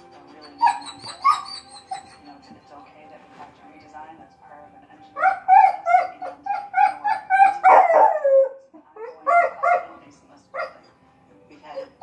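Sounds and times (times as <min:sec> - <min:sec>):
dog whining: 0:00.4 - 0:02.3, 0:05.2 - 0:09.8
dog yipping: 0:00.4 - 0:02.3, 0:05.2 - 0:09.9, 0:10.5 - 0:10.9.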